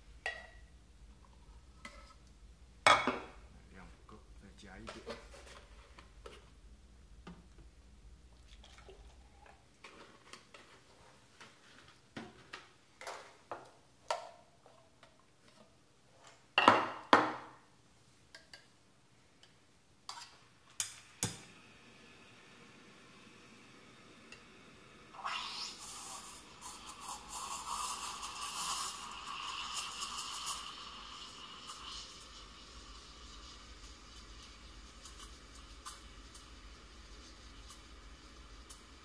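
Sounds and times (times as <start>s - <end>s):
milk pouring: 8.3s - 10.1s, 24.9s - 39.0s.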